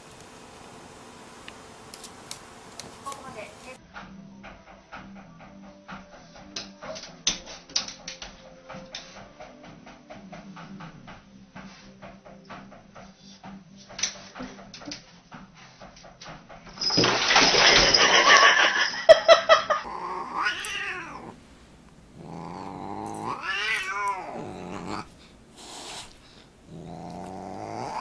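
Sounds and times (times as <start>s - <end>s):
cat yowling: 19.8s - 21.4s, 22.2s - 25.1s, 26.7s - 28.0s.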